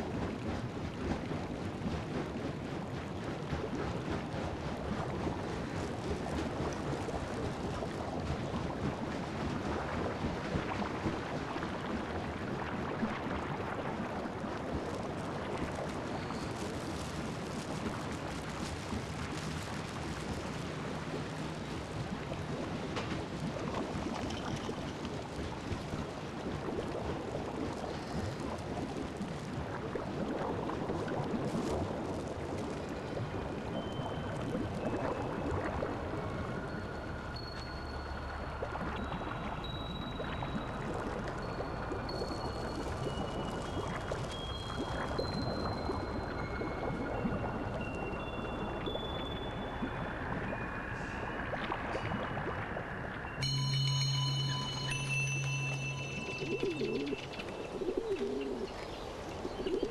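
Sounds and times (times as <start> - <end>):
washing machines sloshing: 0.0 - 36.7
thin high tones: 53.4 - 58.6.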